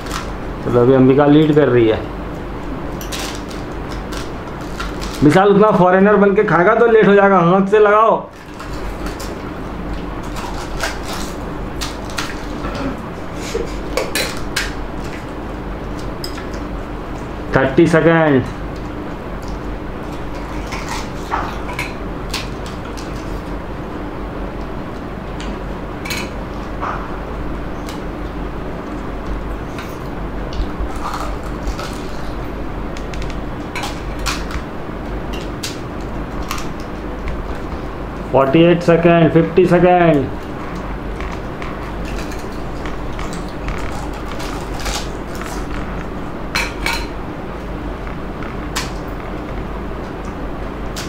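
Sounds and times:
steady low hum: 0:00.0 - 0:51.0
crisp shells cracking: 0:03.1 - 0:05.4, 0:10.0 - 0:12.6, 0:30.6 - 0:34.7, 0:40.7 - 0:47.1.

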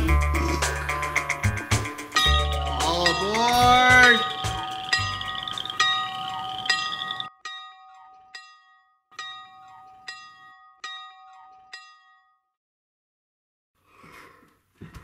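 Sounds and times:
backing sound: 0:00.8 - 0:07.3
bell-like chime notes ringing: 0:02.1 - 0:12.4.

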